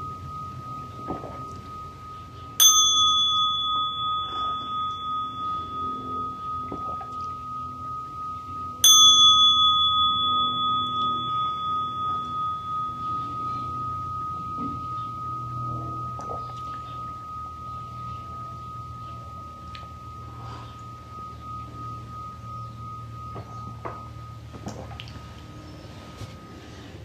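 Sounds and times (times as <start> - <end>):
metal bowl bell struck: 0.0 - 26.9
steady ringing tone: 0.0 - 27.0.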